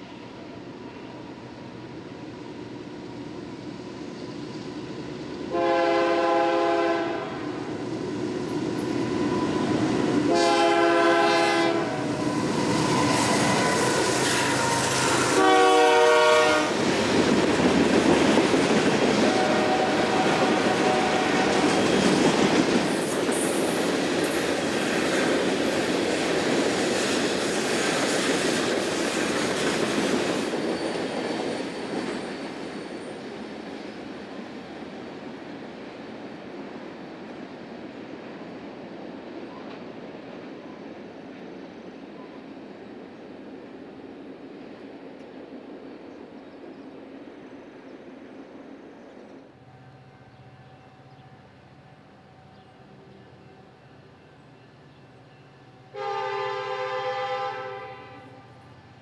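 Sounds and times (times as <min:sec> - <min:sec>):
locomotive horn blasts: 0:05.5 - 0:07.6, 0:10.3 - 0:12.2, 0:14.6 - 0:16.8, 0:19.2 - 0:21.8, 0:55.9 - 0:58.7
train wheels clattering on rails: 0:08.3 - 0:11.4, 0:12.1 - 0:35.0.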